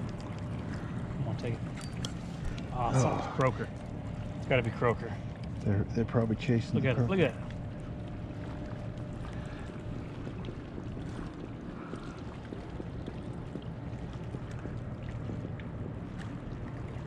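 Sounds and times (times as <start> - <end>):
water around kayak: 0.0 - 17.0
wind: 0.0 - 17.0.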